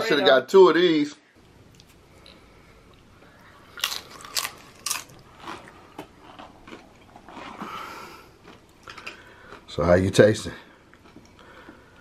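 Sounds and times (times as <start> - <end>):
tortilla chip crunching: 3.7 - 9.7.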